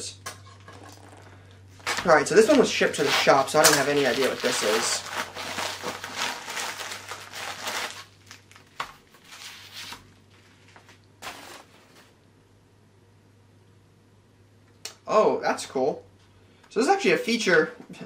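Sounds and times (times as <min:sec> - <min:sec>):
plastic mailer crinkling and tearing: 0:00.9 - 0:12.1.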